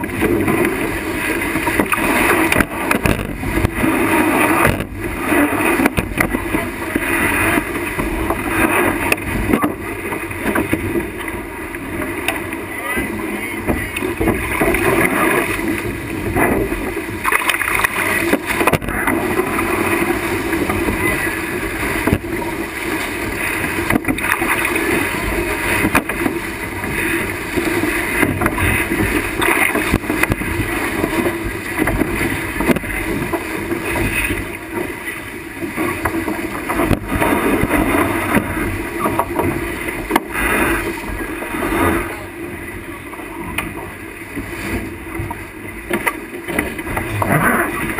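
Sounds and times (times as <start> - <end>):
wind buffeting microphone: 0.0 - 12.4
water rushing along hull: 0.0 - 47.9
waves slapping boat: 0.0 - 47.9.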